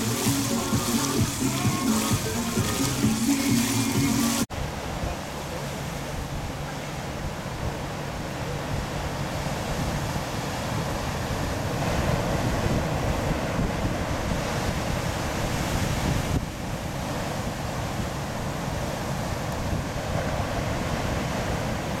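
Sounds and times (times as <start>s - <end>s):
surf breaking over rocks: 0.0s - 7.7s
wind buffeting microphone: 6.0s - 22.0s.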